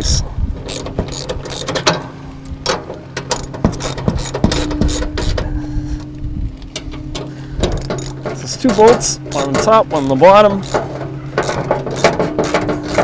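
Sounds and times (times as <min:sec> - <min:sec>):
ratchet wrench clicking: 0:00.0 - 0:01.9, 0:03.3 - 0:05.4, 0:07.7 - 0:08.2, 0:09.3 - 0:10.8, 0:11.4 - 0:13.0
steady low hum: 0:00.0 - 0:13.0.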